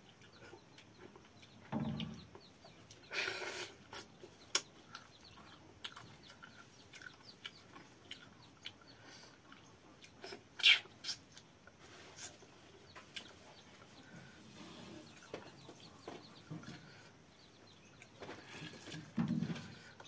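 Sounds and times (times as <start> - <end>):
man chewing with smacks: 0.0 - 14.0, 17.8 - 19.2.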